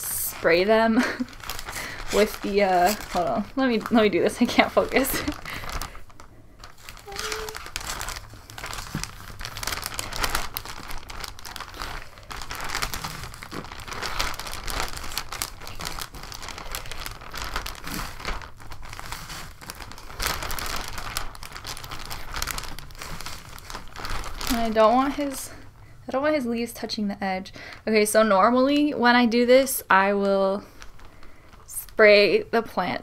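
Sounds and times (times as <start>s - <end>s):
plastic bag crinkling: 0.0s - 25.8s, 27.6s - 32.9s.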